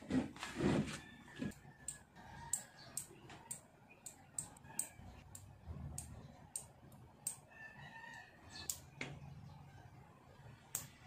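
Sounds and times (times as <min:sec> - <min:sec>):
faint rooster crowing: 0:00.8 - 0:03.6, 0:04.4 - 0:05.4, 0:07.2 - 0:08.9.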